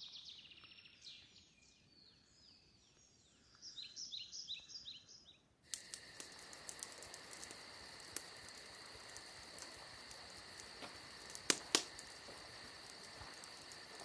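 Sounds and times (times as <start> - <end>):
chorus of calling insects: 5.7 - 14.0
light clicks: 5.7 - 14.0.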